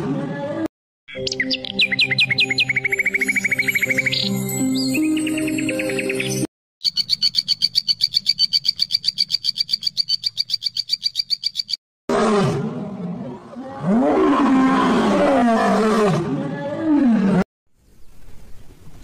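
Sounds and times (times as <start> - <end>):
lion growling and roaring: 12.1 - 17.4.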